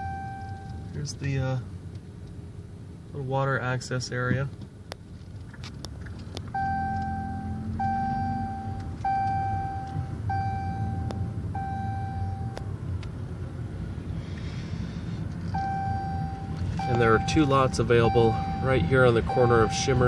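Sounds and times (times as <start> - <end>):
car engine and road rumble: 0.0 - 20.0
electronic beeper: 15.6 - 20.0.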